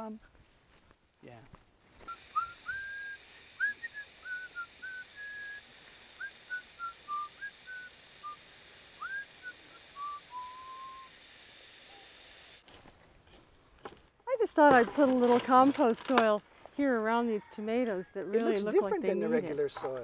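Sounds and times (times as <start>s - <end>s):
person whistling a tune: 2.1s - 5.6s, 6.2s - 8.4s, 9.0s - 11.1s.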